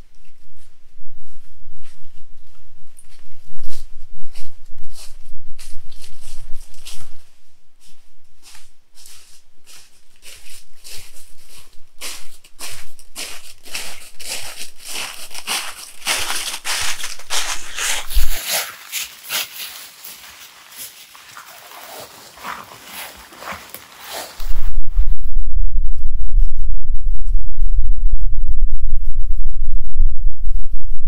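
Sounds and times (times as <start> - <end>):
low rumble: 0.0 - 18.4, 24.4 - 31.0
dry material crunching and rustling: 10.2 - 24.5.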